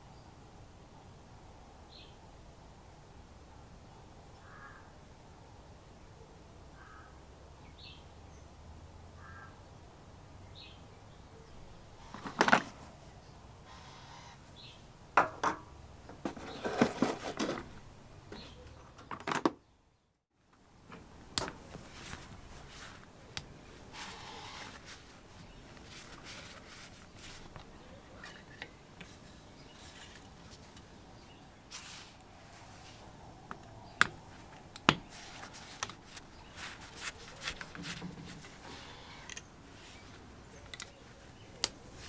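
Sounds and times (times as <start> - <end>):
faint bird calls: 4.4 - 5.0, 6.2 - 8.1, 9.2 - 9.6, 13.2 - 14.8, 23.4 - 26.8, 38.6 - 42.0.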